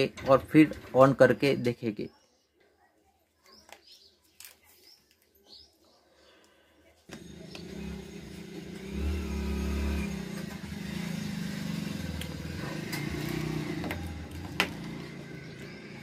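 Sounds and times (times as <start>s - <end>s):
motor engine running: 7.1s - 16.0s.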